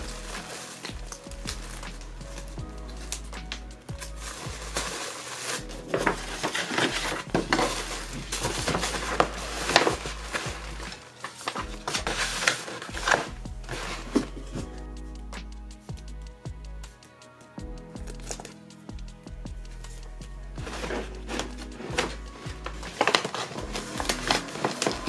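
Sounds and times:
paper bag crinkling: 0.0s - 1.9s, 4.1s - 14.4s, 22.9s - 25.0s
cardboard mailer rustling and scraping: 0.0s - 2.2s, 4.0s - 14.6s, 20.7s - 25.0s.

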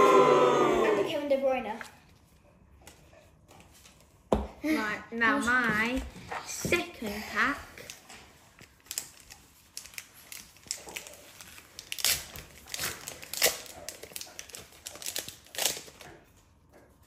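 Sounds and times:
wrapper being torn and crinkled: 8.6s - 16.1s.

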